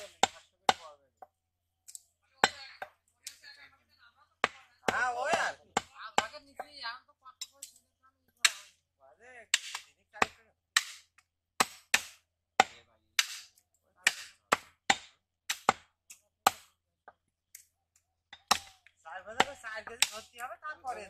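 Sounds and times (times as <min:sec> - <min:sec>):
cleaver chopping on wooden block: 0:00.0 - 0:01.3, 0:04.4 - 0:06.4, 0:09.5 - 0:17.2, 0:18.3 - 0:18.8, 0:19.4 - 0:20.3.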